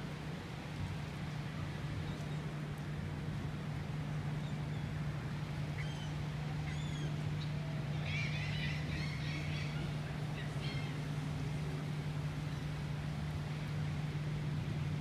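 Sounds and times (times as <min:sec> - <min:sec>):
steady low hum: 0:00.0 - 0:15.0
gulls calling: 0:05.6 - 0:13.0.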